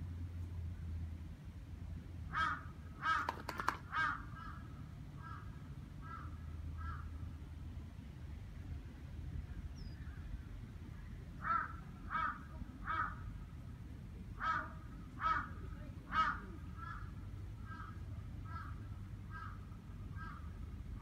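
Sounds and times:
bird calling: 2.4s - 4.6s.

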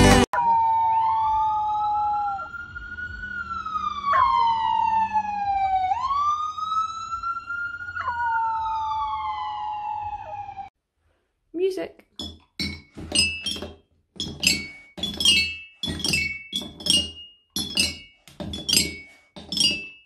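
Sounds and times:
wailing siren: 0.3s - 10.8s
puppy howling: 0.4s - 2.6s, 4.0s - 4.6s, 7.9s - 9.2s.

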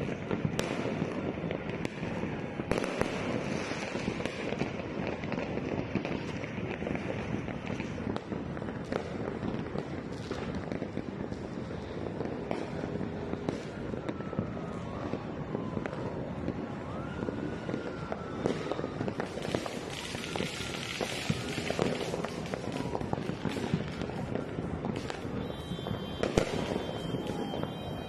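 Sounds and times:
crackle of distant fireworks: 0.0s - 28.0s
loud firework bang: 18.4s - 28.0s
rocket whistles: 25.4s - 28.0s.

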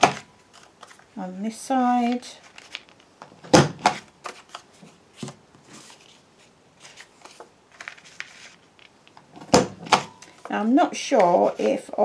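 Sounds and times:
paper rustling: 0.0s - 1.1s, 2.0s - 3.2s, 3.8s - 9.2s.

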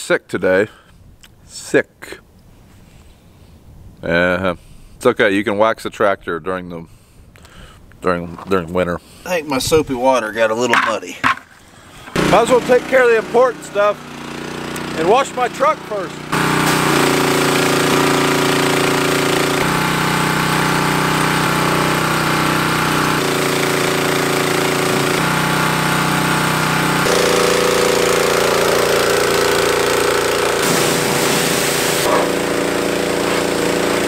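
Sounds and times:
pressure washer engine running: 12.0s - 34.0s
spray wand hissing: 16.5s - 18.6s, 27.1s - 32.4s.

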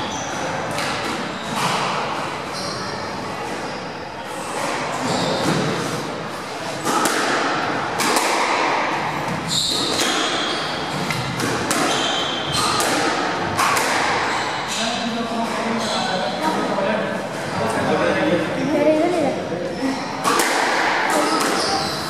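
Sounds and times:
shoes squeaking on wooden floor: 2.5s - 6.1s, 9.2s - 12.8s, 21.2s - 22.0s
squash ball cracks: 6.8s - 9.0s, 11.0s - 14.3s, 20.2s - 21.6s.

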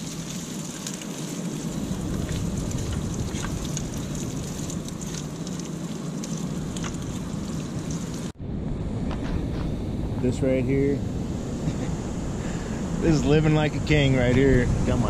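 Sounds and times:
food sizzling in a skillet: 0.0s - 8.3s.

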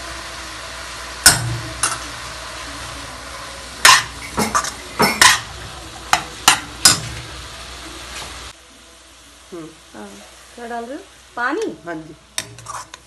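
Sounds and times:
spatula scraping a steel pan: 3.8s - 5.4s, 12.4s - 13.0s.

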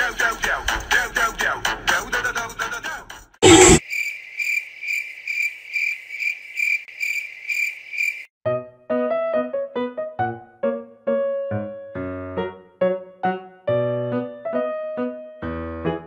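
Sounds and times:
cricket chirping: 3.8s - 8.3s
keyboard music: 8.5s - 16.0s.

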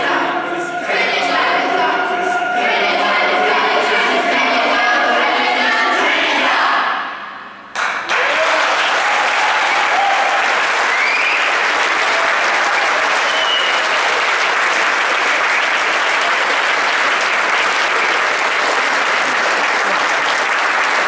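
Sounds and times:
audience applauding: 7.7s - 21.0s.

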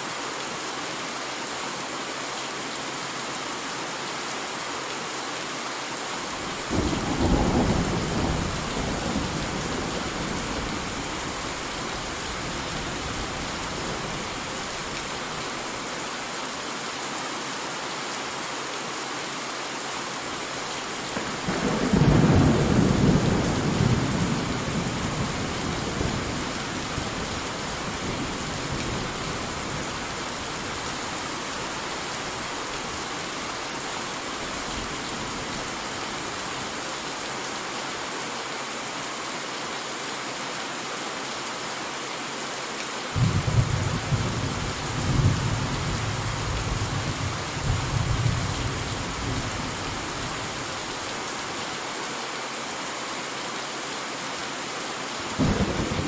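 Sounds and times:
steady rain: 0.0s - 56.0s
thunder rumbling: 6.7s - 14.7s, 43.2s - 49.8s, 55.4s - 56.0s.

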